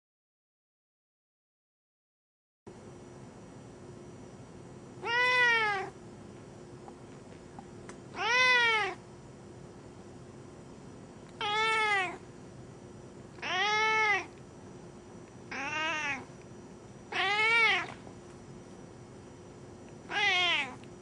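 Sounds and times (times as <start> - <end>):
cat meowing: 5.0 - 6.0, 8.2 - 9.0, 11.4 - 12.2, 13.4 - 14.4, 15.5 - 16.3, 17.1 - 18.0, 20.1 - 20.8.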